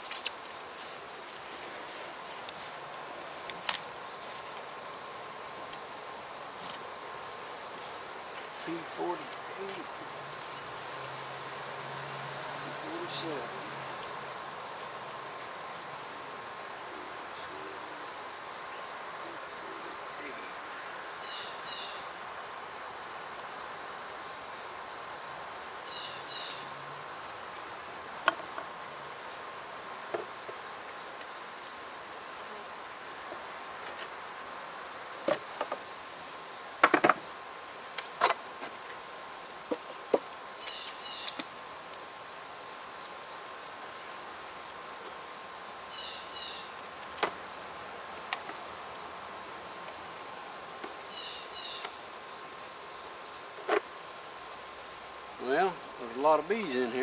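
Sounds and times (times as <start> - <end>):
insects singing: 0.0 - 57.0
wooden hive boxes clattering: 35.2 - 35.9, 36.8 - 37.3.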